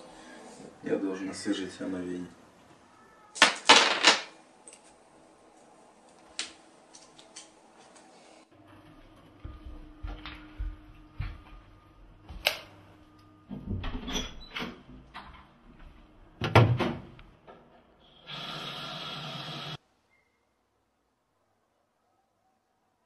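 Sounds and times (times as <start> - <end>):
soft footsteps: 8.7 - 12.5.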